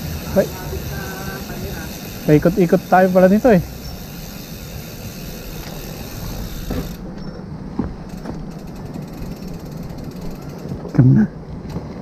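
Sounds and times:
bicycle freewheel ticking: 0:00.0 - 0:07.1, 0:08.1 - 0:11.0.

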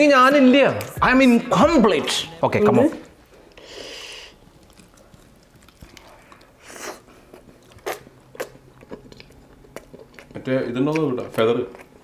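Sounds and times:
person chewing food: 0:03.3 - 0:12.0.

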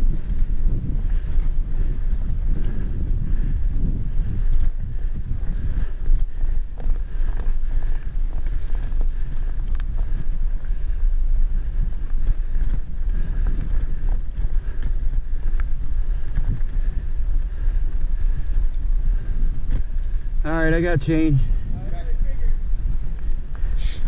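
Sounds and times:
bike clicks and rattles: 0:00.0 - 0:06.2, 0:06.8 - 0:11.0
wind buffeting microphone: 0:00.0 - 0:24.0.

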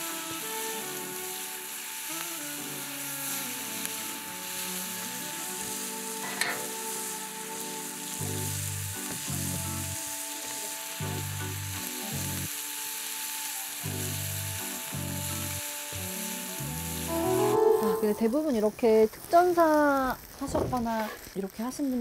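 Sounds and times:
meat sizzling in a pan: 0:00.0 - 0:22.0
background music bass notes: 0:02.2 - 0:10.2, 0:11.0 - 0:12.5, 0:13.8 - 0:18.4.

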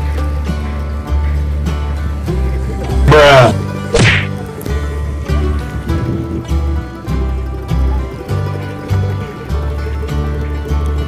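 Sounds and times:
background music: 0:00.0 - 0:11.0
whip-like whack: 0:03.9 - 0:04.4.

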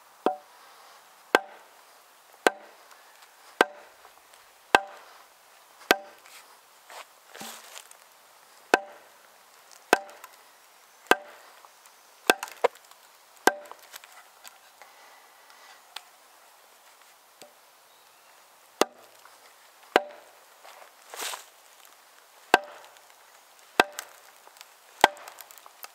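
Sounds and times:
maul striking axe head: 0:00.2 - 0:00.5, 0:01.3 - 0:01.7, 0:02.4 - 0:02.8, 0:03.6 - 0:04.0, 0:04.7 - 0:05.1, 0:05.9 - 0:06.2, 0:08.7 - 0:09.1, 0:09.9 - 0:10.3, 0:11.1 - 0:11.4, 0:12.3 - 0:12.8, 0:13.4 - 0:13.8, 0:18.8 - 0:19.1, 0:20.0 - 0:20.3, 0:22.5 - 0:23.0, 0:23.8 - 0:24.2, 0:25.0 - 0:25.5.

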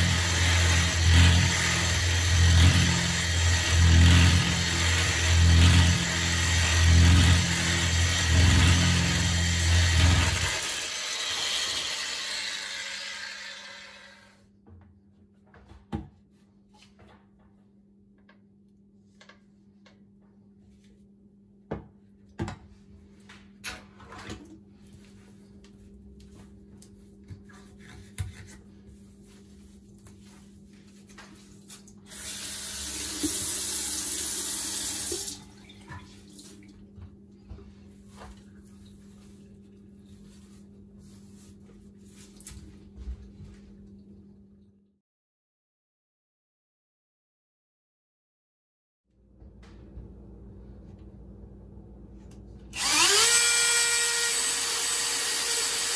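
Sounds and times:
faucet running into steel sink: 0:32.2 - 0:36.2.

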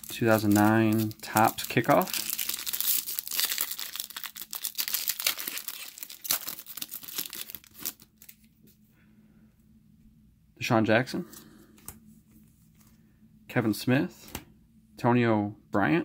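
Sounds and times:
foil wrapper tearing and crinkling: 0:00.0 - 0:08.5.

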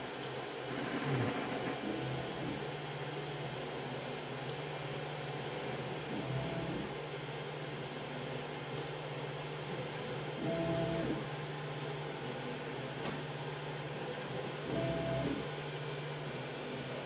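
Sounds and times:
printer fans humming: 0:00.0 - 0:17.0.

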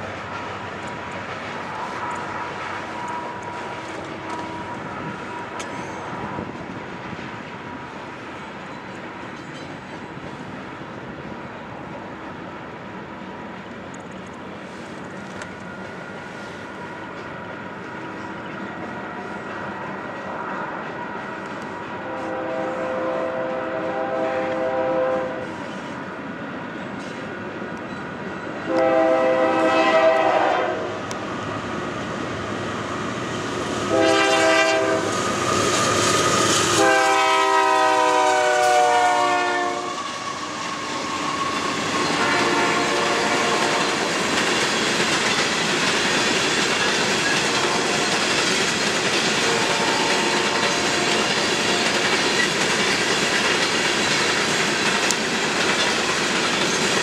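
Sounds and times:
train cars rolling past: 0:00.0 - 0:57.0
distant train horn: 0:01.7 - 0:06.5, 0:20.3 - 0:25.8, 0:28.6 - 0:31.1, 0:33.8 - 0:35.4, 0:36.6 - 0:44.2, 0:47.4 - 0:48.2, 0:49.3 - 0:52.0
train horn blasts: 0:02.8 - 0:06.5, 0:22.0 - 0:25.6, 0:28.7 - 0:31.0, 0:33.9 - 0:35.1, 0:36.8 - 0:44.1, 0:49.4 - 0:51.3.

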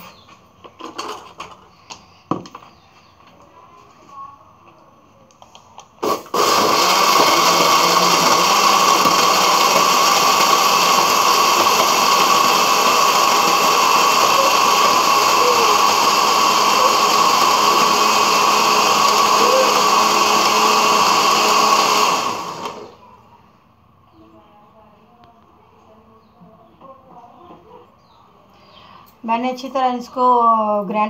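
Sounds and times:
blender motor whine: 0:06.0 - 0:23.0.

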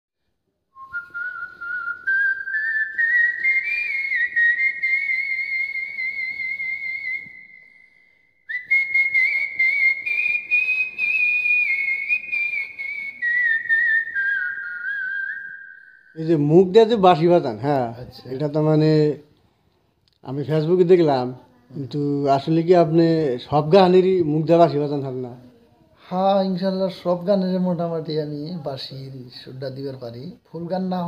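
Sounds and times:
man whistling a melody: 0:00.7 - 0:16.4.

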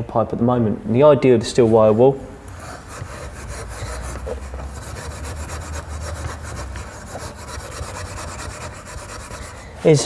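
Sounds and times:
wire wool scrubbing copper pipe: 0:02.5 - 0:10.0.

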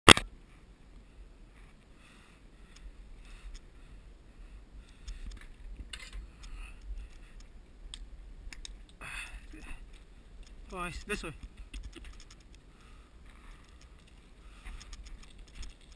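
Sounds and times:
steady low rumble: 0:00.2 - 0:15.9
clicks and knocks of handling: 0:13.6 - 0:15.9.

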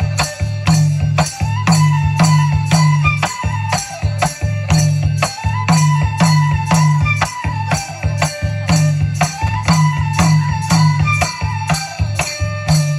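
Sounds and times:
bamboo flute melody: 0:00.0 - 0:12.9
barrel drum beat: 0:00.0 - 0:12.9.

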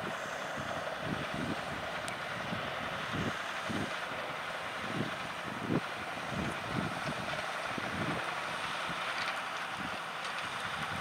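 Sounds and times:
tractor engine under load: 0:00.0 - 0:11.0
wind buffeting microphone: 0:00.0 - 0:11.0.

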